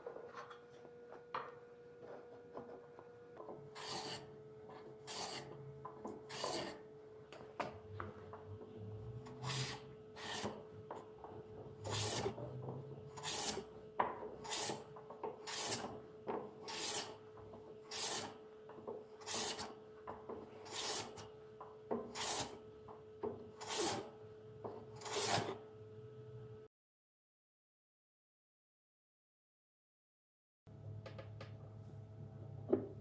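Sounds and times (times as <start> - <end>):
sanding block rubbing wood: 3.8 - 4.3, 5.0 - 5.5, 6.3 - 6.8, 9.4 - 10.6, 11.8 - 12.4, 13.2 - 13.6, 14.4 - 14.8, 15.4 - 15.9, 16.7 - 17.2, 17.9 - 18.3, 19.2 - 19.7, 20.7 - 21.2, 22.2 - 22.5, 23.6 - 24.0.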